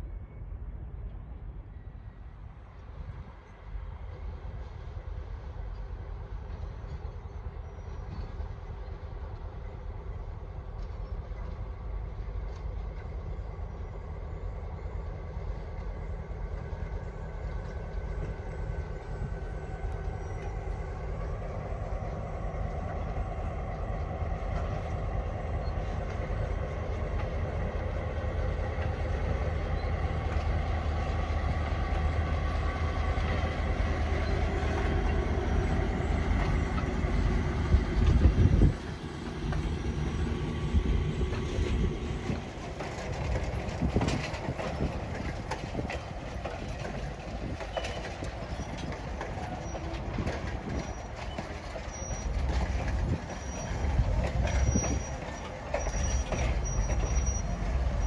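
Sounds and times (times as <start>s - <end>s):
diesel locomotive engine hum: 0.0s - 58.0s.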